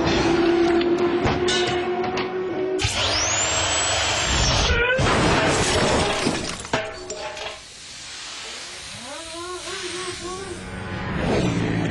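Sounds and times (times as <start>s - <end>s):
car crash with breaking glass: 5.0s - 7.6s.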